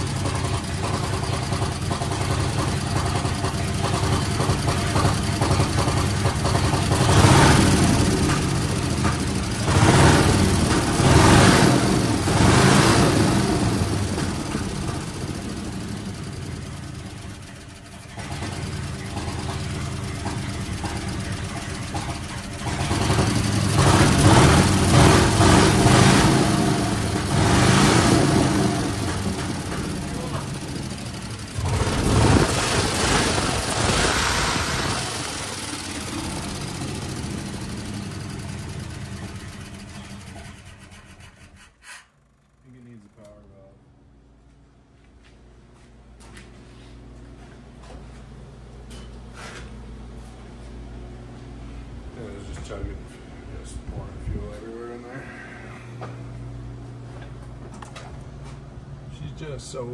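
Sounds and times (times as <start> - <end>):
rough truck engine revving: 2.4 - 16.4, 18.1 - 40.7.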